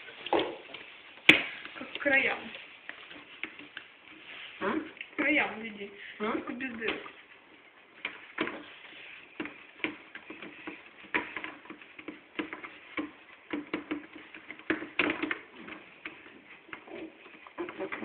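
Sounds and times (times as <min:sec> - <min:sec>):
hands patting dough on metal tray: 0:08.0 - 0:18.0.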